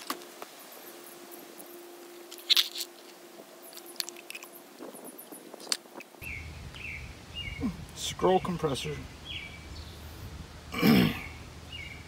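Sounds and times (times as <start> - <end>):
metal parts clicking and clinking: 2.3 - 6.1.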